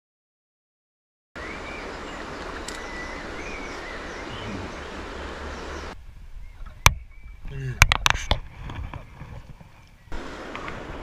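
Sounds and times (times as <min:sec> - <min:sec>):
river water rushing: 0:01.4 - 0:06.0, 0:10.1 - 0:11.0
birds chirping: 0:01.4 - 0:11.0.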